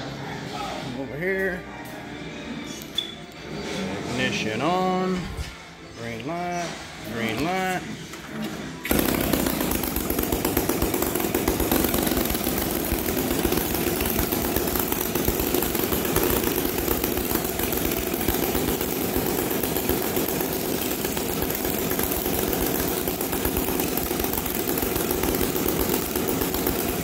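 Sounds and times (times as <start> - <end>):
model aircraft engines idling: 8.9 - 27.0.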